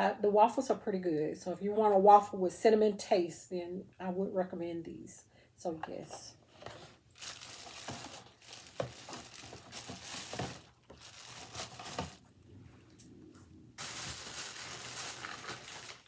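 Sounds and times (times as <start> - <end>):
bag and packaging rustling: 6.6 - 13.1, 13.8 - 16.0.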